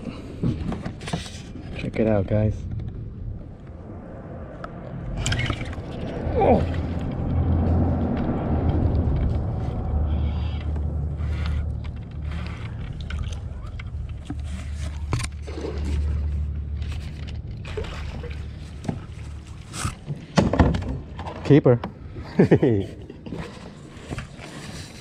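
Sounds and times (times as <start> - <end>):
steady low rumble: 0.0 - 21.2
kayak gear knocking and scraping: 0.1 - 3.1, 5.2 - 22.0.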